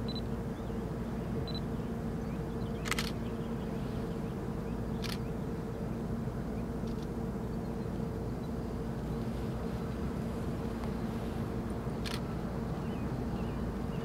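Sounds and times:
distant jet drone: 0:00.0 - 0:14.0
camera shutter clicks: 0:02.8 - 0:03.2, 0:12.0 - 0:12.2.

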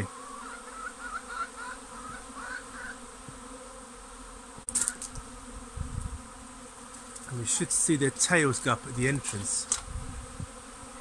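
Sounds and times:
honeybee swarm buzzing: 0:00.0 - 0:11.0
sharp click: 0:09.7 - 0:09.9.

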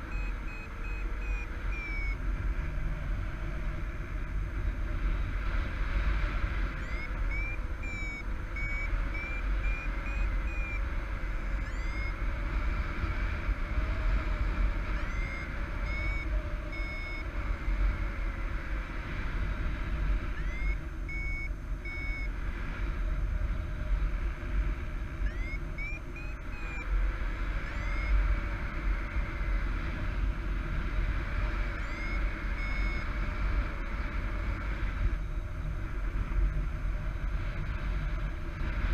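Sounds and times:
variometer beeping: 0:00.0 - 0:02.4, 0:06.6 - 0:13.6, 0:14.4 - 0:18.2, 0:20.3 - 0:22.4, 0:25.0 - 0:29.3, 0:31.3 - 0:35.1.

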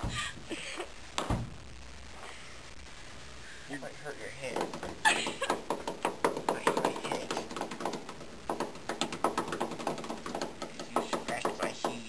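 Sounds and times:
rapid light taps and clicks: 0:04.4 - 0:12.0.

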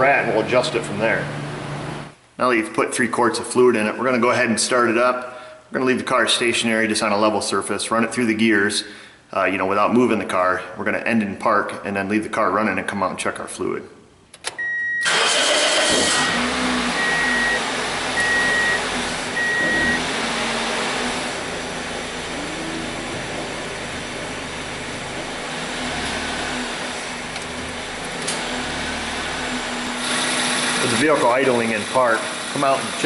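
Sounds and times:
car engine starting and idling: 0:14.5 - 0:33.0
dashboard warning chime: 0:17.0 - 0:17.6, 0:18.2 - 0:20.1.

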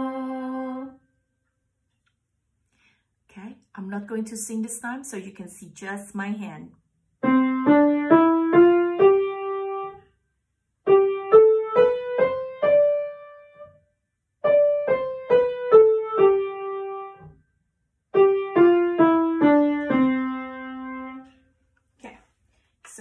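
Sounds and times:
piano single notes: 0:18.2 - 0:21.4.

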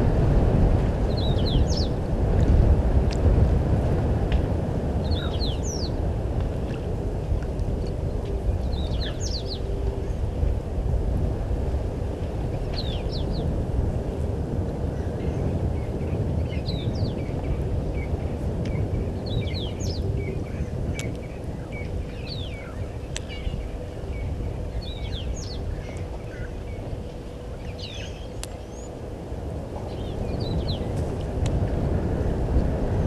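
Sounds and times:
low rumbling noise: 0:00.0 - 0:33.0
birds chirping and whistling: 0:01.1 - 0:02.0, 0:05.0 - 0:06.0, 0:08.2 - 0:10.2, 0:12.7 - 0:13.5, 0:15.2 - 0:29.0, 0:29.9 - 0:31.0.

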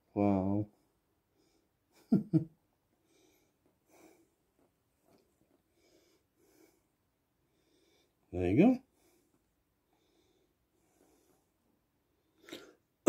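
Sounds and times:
soft breathing close to microphone: 0:03.0 - 0:04.5, 0:05.5 - 0:08.3, 0:08.9 - 0:12.9.

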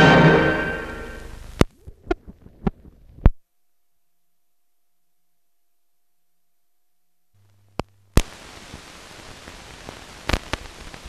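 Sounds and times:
low hum: 0:00.0 - 0:08.2
film hiss with crackles and pops: 0:00.0 - 0:11.0.

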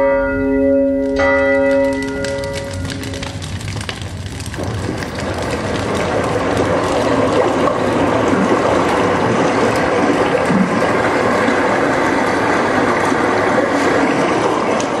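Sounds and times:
fire crackling: 0:01.7 - 0:12.2.

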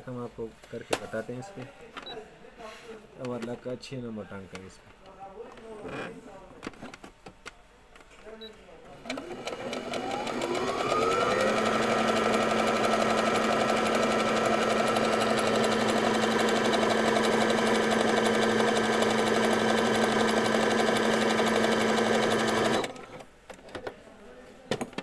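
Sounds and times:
sewing machine running fast: 0:09.0 - 0:22.9.

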